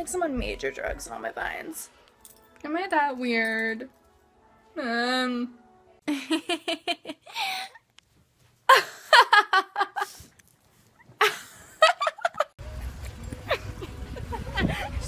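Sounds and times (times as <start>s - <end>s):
young women laughing hard: 8.7s - 10.2s, 11.2s - 12.6s, 13.4s - 15.0s.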